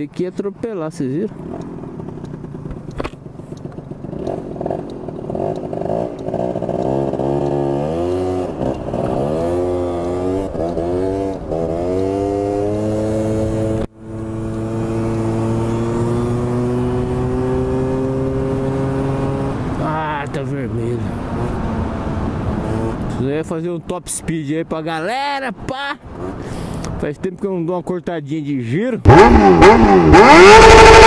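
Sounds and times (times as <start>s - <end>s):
motorcycle engine accelerating: 1.3s - 23.3s, 29.0s - 31.0s.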